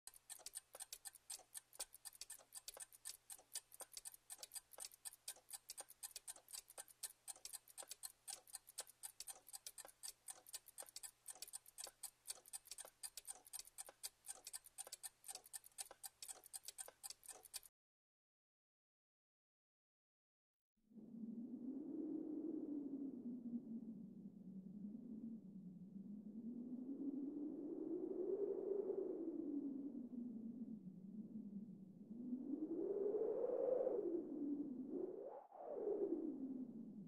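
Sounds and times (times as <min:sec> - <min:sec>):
fast even ticking: 0:00.0 - 0:17.7.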